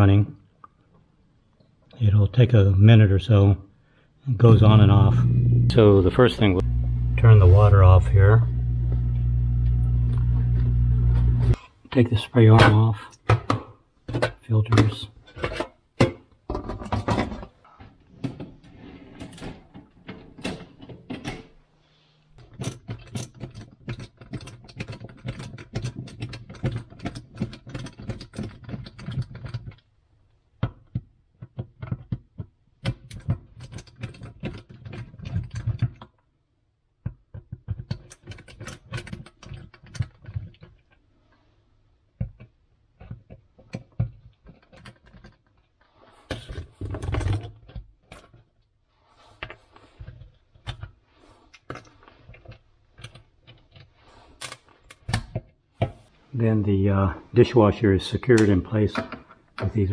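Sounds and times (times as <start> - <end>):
clicks knocks and rattles: 22.4 - 29.9, 30.6 - 36.3, 37.0 - 41.5, 42.1 - 48.6.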